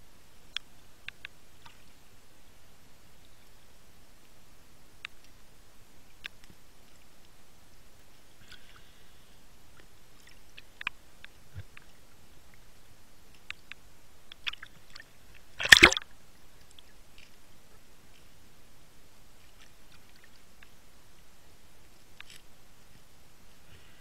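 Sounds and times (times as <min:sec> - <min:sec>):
faint underwater clicks: 0:00.3 - 0:18.6, 0:19.2 - 0:23.8
loud sharp underwater crack: 0:15.6 - 0:16.0.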